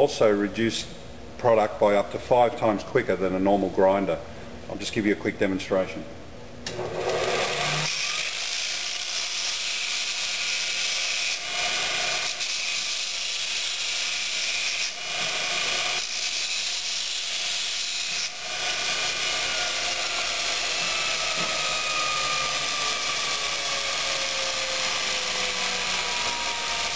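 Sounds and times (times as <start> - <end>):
belt grinder motor: 6.7 - 26.9.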